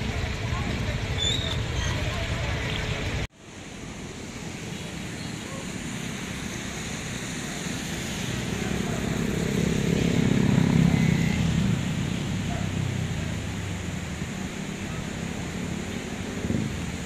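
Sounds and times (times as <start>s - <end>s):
river rushing: 0.0s - 17.0s
vehicle passing by: 5.5s - 17.0s.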